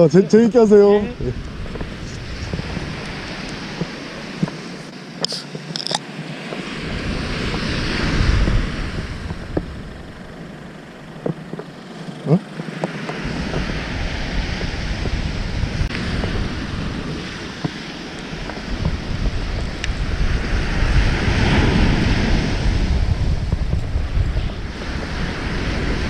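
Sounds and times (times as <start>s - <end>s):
surf breaking on shore: 0.0s - 26.0s
wind buffeting microphone: 0.0s - 26.0s.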